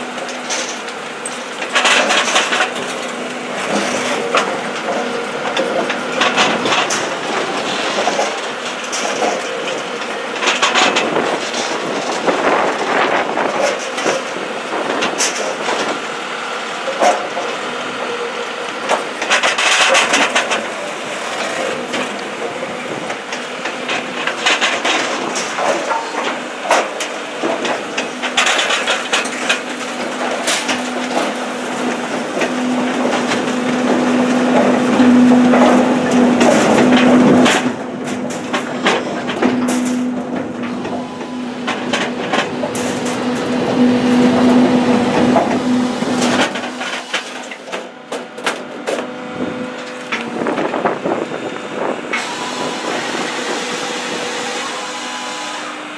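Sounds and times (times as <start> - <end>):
machine hum: 15.8 - 55.9.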